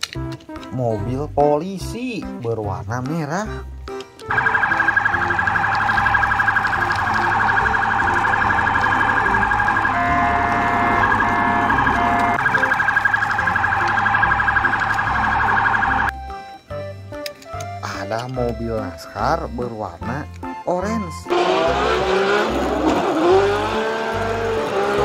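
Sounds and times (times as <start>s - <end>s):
toy police siren warble: 4.3s - 16.2s.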